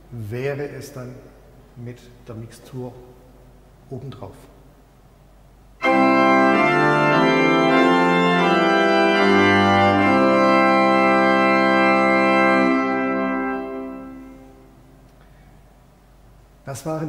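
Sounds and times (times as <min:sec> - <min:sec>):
pipe organ playing chords: 0:05.8 - 0:15.0.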